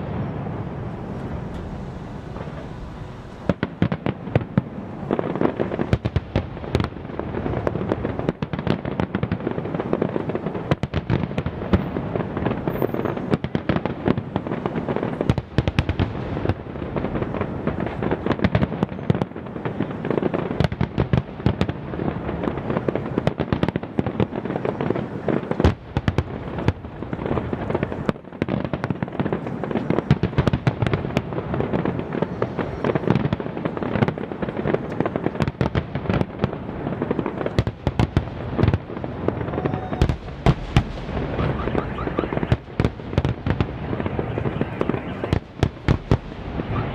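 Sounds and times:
fireworks bursting: 0.0s - 46.9s.

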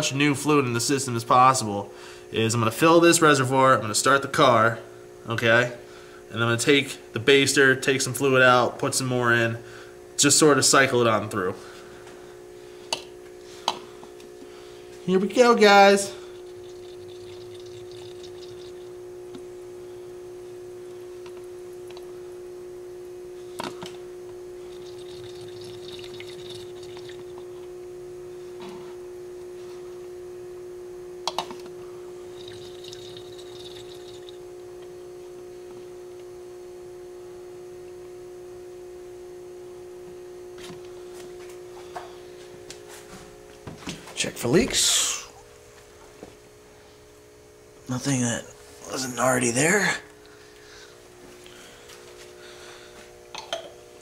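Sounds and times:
steady hum: 0.0s - 54.0s
fluid trickling and splashing: 16.5s - 18.9s, 24.8s - 27.3s, 32.4s - 34.4s.

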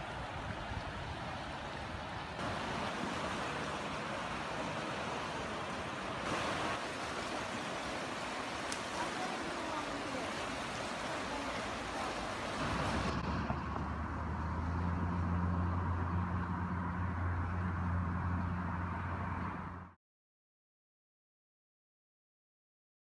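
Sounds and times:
floodwater rushing: 0.0s - 16.0s.

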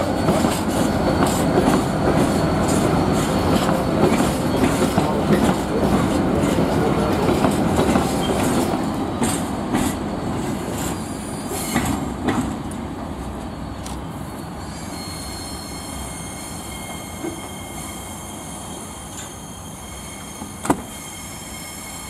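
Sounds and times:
train wheels clattering over rail joints: 0.1s - 12.8s
wheel squeal: 14.5s - 22.0s.

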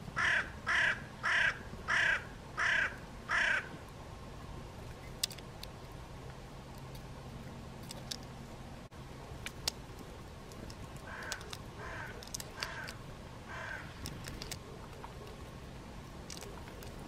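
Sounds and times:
crow cawing: 0.2s - 3.7s, 11.0s - 14.0s.

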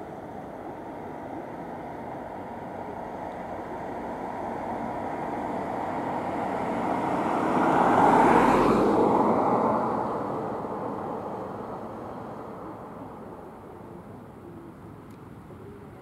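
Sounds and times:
vehicle passing by: 3.3s - 13.2s.

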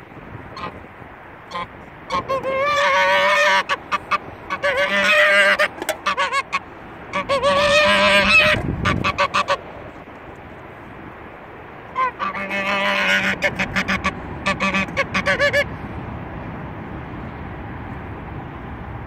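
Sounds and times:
goose honking: 0.5s - 0.8s, 1.5s - 9.6s, 11.9s - 15.7s.

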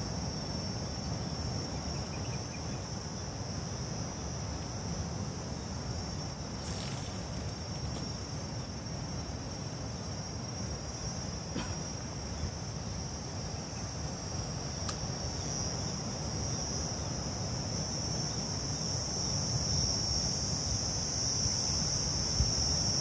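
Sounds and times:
insects buzzing: 0.0s - 23.0s.

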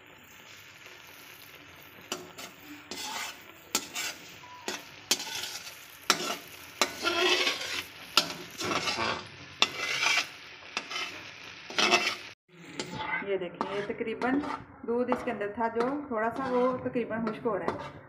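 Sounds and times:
cream sizzling: 0.0s - 14.6s
metal spatula scraping a pan: 2.0s - 18.0s
spatula knocking the pan: 13.6s - 18.0s.

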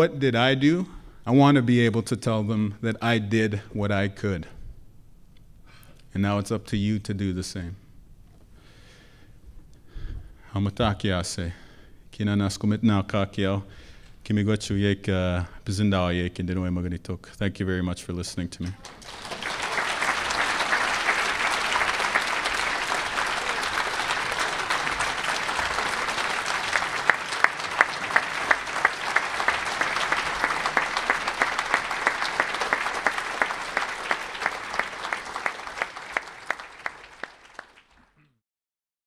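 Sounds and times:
audience applauding: 18.6s - 38.2s
steady rhythmic clapping: 18.6s - 38.2s.

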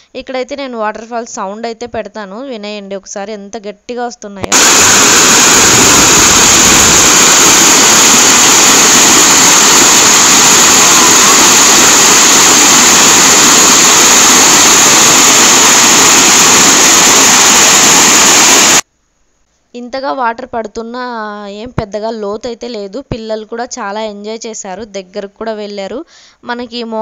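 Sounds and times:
waterfall rushing: 4.5s - 18.8s.

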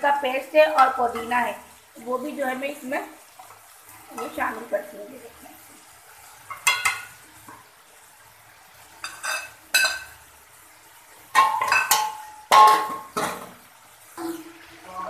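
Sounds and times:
utensils clanging on metal pan: 6.5s - 7.2s, 9.0s - 10.2s, 11.3s - 13.6s.

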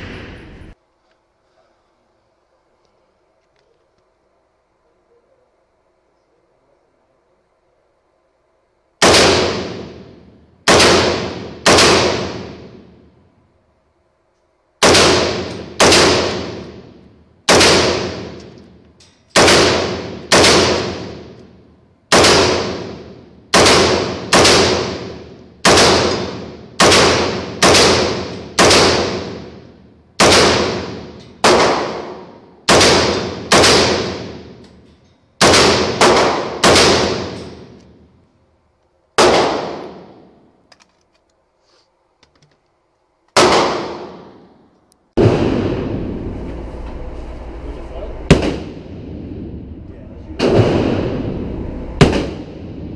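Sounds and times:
rifle single shots echoing indoors: 9.0s - 13.1s, 14.8s - 38.2s, 39.1s - 40.5s, 43.3s - 46.2s, 52.0s - 52.9s.

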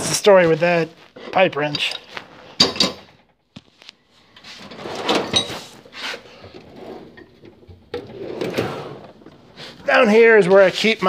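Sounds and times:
tool chest drawer sliding: 4.4s - 9.9s.

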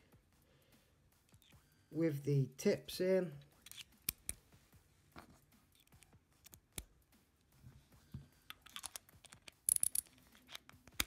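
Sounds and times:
screwdriver bits clicking: 3.6s - 4.3s, 8.5s - 11.0s.

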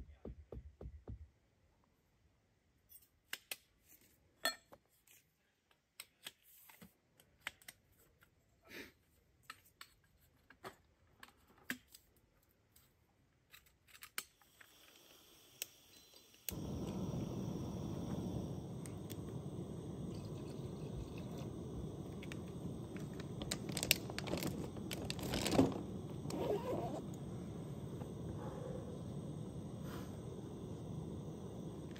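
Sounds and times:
soft hiss: 14.4s - 31.9s.

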